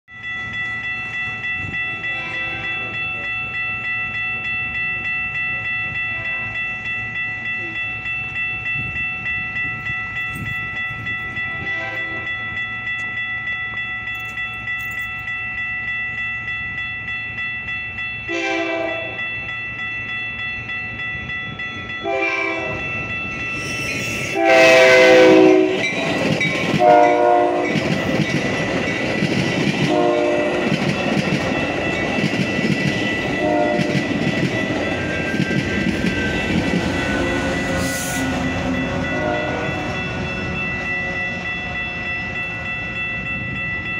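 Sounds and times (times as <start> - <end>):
railroad crossing bell ringing: 0.1 - 43.9
train rumble: 0.2 - 43.9
train horn blasts: 2.0 - 2.9, 11.5 - 12.4, 18.3 - 19.2, 22.0 - 22.9, 24.2 - 26.0, 26.8 - 27.8, 29.9 - 30.7, 33.4 - 34.0, 37.2 - 40.2.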